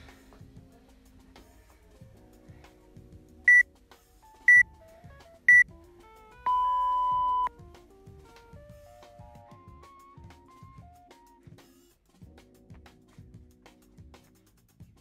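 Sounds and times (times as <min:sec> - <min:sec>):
background music: 0:00.0 - 0:15.0
long low beep: 0:06.5 - 0:07.5
short high beeps: 0:06.5 - 0:07.5.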